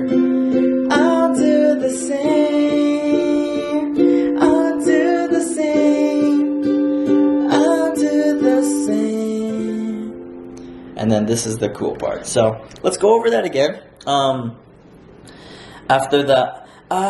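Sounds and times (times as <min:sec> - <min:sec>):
ukulele strumming chords: 0:00.0 - 0:12.3.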